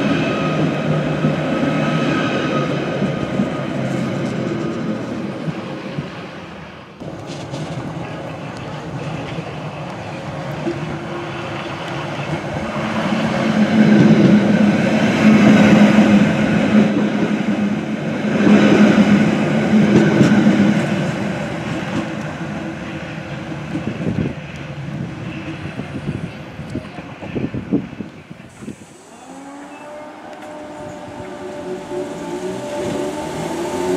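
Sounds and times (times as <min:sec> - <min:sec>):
train wheels clattering on rails: 0:07.0 - 0:26.2
electric train motor hum: 0:28.5 - 0:33.9.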